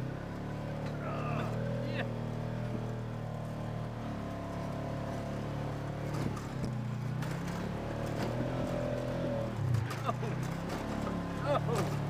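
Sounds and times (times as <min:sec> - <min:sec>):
off-road vehicle engine under load: 0:00.0 - 0:12.0
vehicle knocking and clattering: 0:09.6 - 0:12.0.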